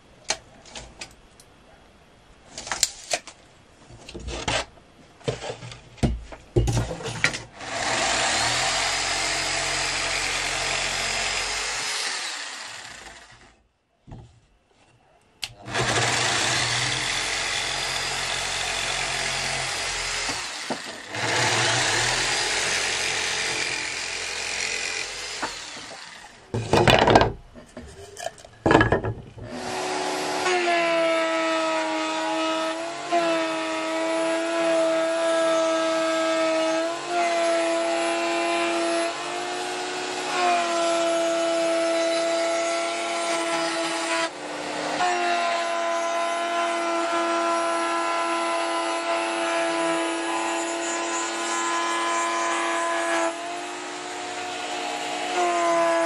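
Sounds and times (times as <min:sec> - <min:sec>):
electric jigsaw cutting wood: 0:07.6 - 0:13.6, 0:15.6 - 0:26.4, 0:29.5 - 0:56.0
power tool humming: 0:07.6 - 0:13.6, 0:15.6 - 0:26.4, 0:29.5 - 0:56.0.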